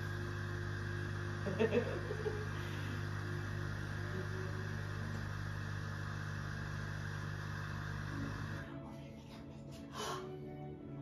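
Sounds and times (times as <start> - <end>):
appliance electrical hum: 0.0 - 8.7.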